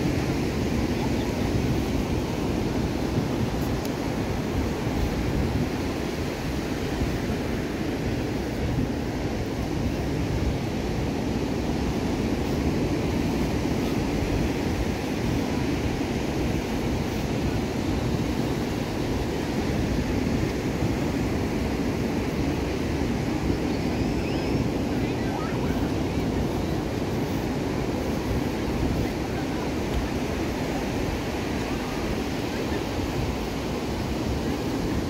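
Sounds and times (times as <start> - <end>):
waves breaking on beach: 0.0 - 35.0
wind buffeting microphone: 0.0 - 35.0.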